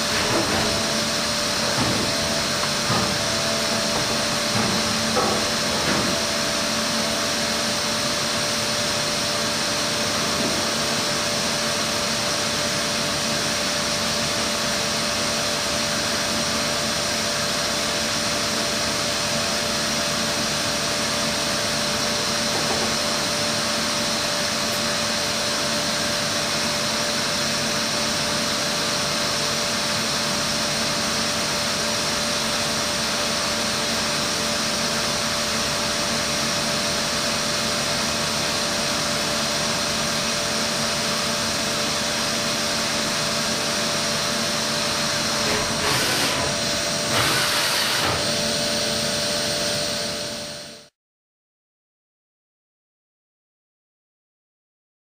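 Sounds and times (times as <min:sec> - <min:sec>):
machine whirring and humming: 0:00.0 - 0:50.8.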